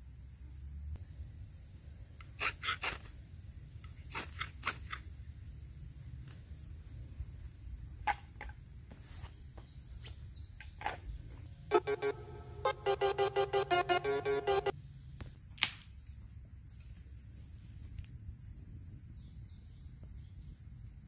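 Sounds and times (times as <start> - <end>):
music: 11.7 - 14.7.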